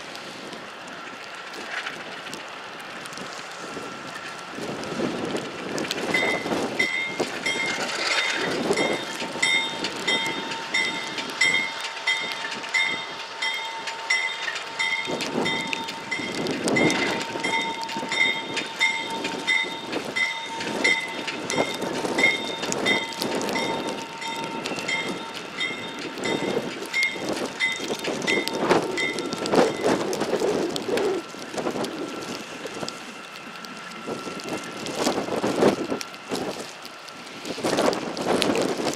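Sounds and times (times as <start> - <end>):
diesel locomotive engine: 0.0 - 38.9
locomotive bell ringing: 6.1 - 30.6.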